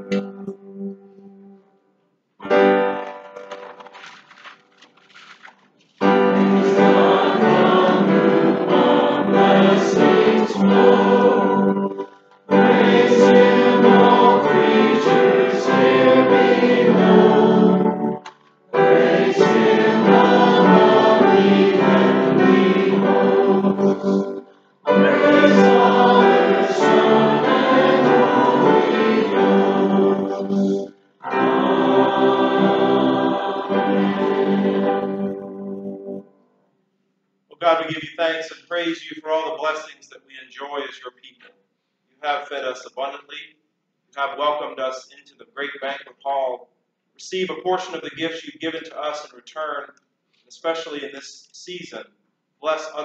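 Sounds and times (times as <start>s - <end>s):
congregation singing a hymn: 6.0s - 36.2s
opening chord: 6.0s - 36.3s.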